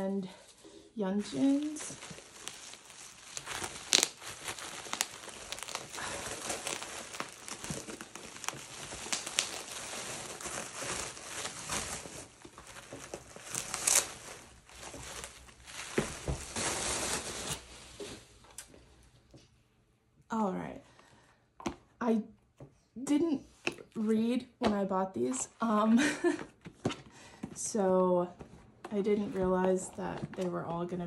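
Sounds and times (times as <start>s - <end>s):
bubble wrap crinkling: 0.0s - 18.6s.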